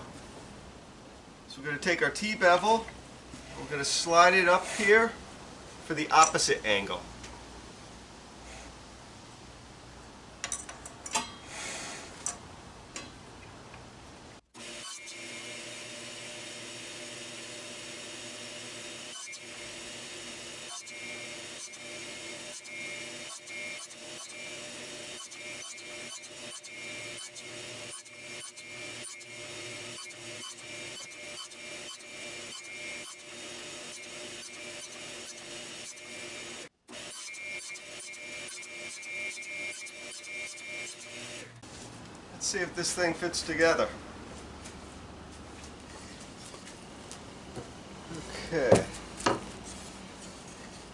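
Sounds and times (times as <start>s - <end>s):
table saw cutting wood: 3.6s - 5.1s, 14.6s - 41.6s.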